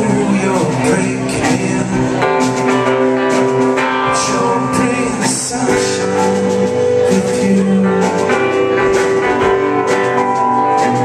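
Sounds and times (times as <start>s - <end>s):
bass guitar: 0.0s - 11.0s
drums: 0.0s - 11.0s
electric guitar: 0.0s - 11.0s.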